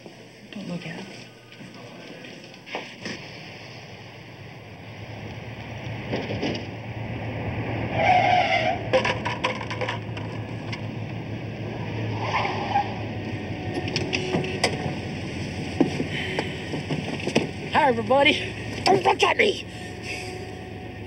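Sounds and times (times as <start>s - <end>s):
car driving up: 2.7s - 21.0s
tire squeal: 7.5s - 10.6s, 11.7s - 16.7s, 19.6s - 21.0s.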